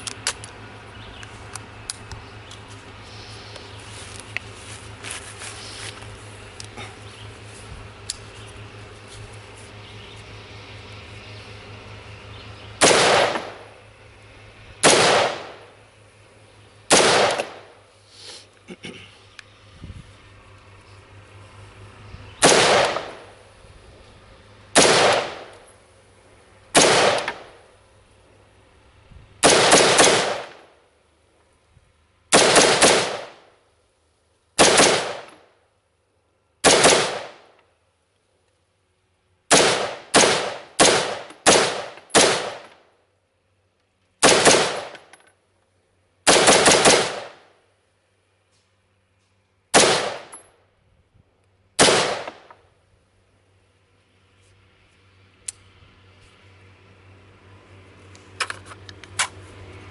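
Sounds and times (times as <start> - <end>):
rifle shots with echo: 12.8 - 13.7, 14.8 - 15.7, 16.9 - 17.8, 22.4 - 23.3, 24.8 - 25.5, 26.8 - 27.6, 29.4 - 30.7, 32.3 - 33.5, 34.6 - 35.4, 36.6 - 37.5, 39.5 - 42.8, 44.2 - 45.1, 46.3 - 47.5, 49.7 - 50.4, 51.8 - 52.5.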